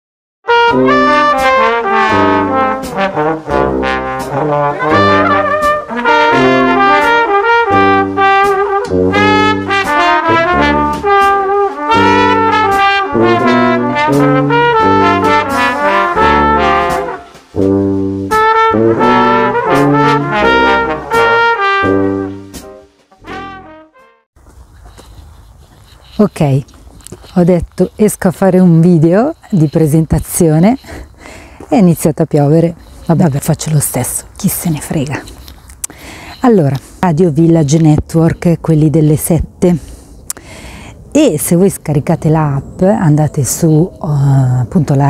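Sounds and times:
lively instrumental music: 0.5 - 24.3.

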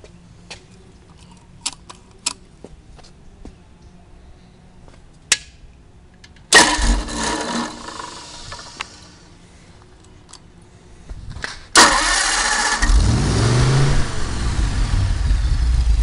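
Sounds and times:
engine starting and running: 6.5 - 9.3, 11.7 - 16.0.

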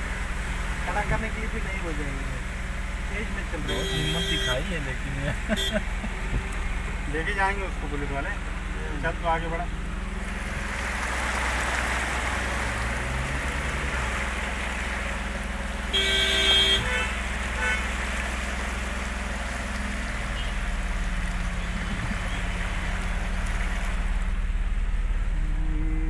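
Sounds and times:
vehicle engine rumbling: 0.0 - 26.0
water rushing: 0.0 - 26.0
vehicle horn toot: 3.6 - 4.9, 5.5 - 6.0, 15.9 - 18.0.

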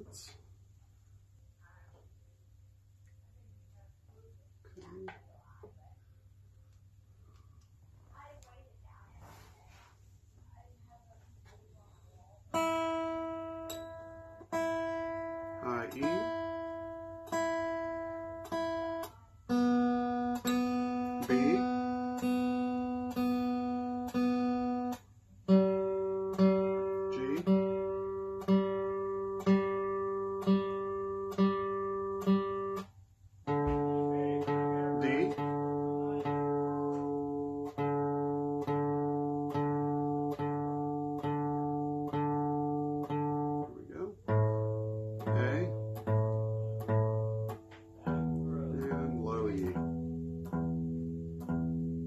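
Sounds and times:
acoustic guitar strings plucked: 12.5 - 52.0.

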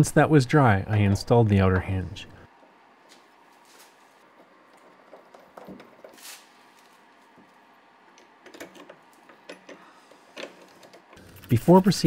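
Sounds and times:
short rustle: 6.1 - 7.2.

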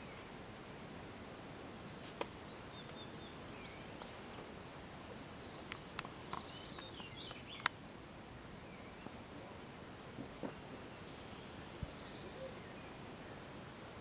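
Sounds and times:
birds chirping: 1.8 - 7.8, 8.4 - 13.5.

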